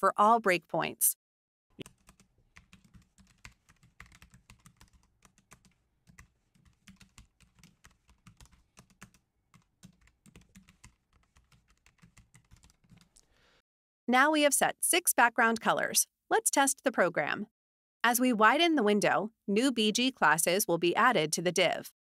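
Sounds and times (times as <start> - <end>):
keyboard typing: 1.8 - 13.3.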